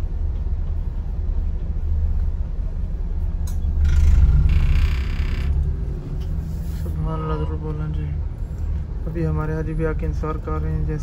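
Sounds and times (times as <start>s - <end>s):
bus engine and road noise: 0.0s - 11.0s
click: 3.4s - 3.7s.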